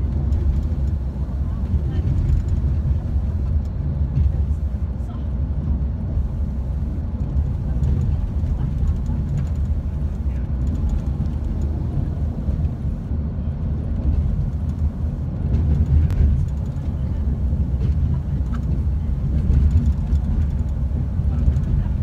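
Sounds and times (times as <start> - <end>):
road and engine noise: 0.0 - 22.0.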